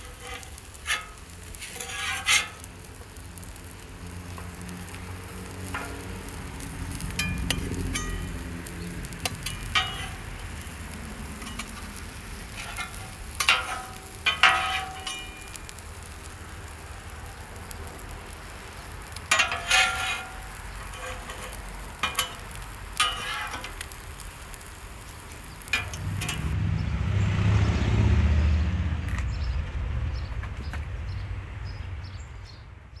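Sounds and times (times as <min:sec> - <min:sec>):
metal spatulas scraping griddle: 0:00.0 - 0:02.8, 0:07.0 - 0:08.4, 0:09.2 - 0:15.8, 0:19.3 - 0:24.0, 0:25.5 - 0:26.5
food sizzling on a griddle: 0:00.0 - 0:26.6
low rumble: 0:25.7 - 0:32.4.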